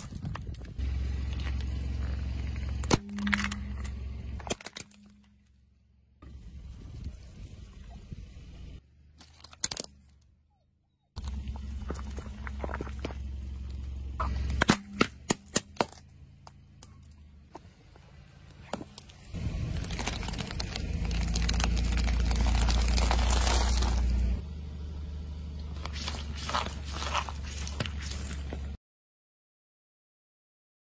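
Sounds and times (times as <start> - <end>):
rushing noise with low rumble: 6.2 - 8.8, 17.5 - 24.4.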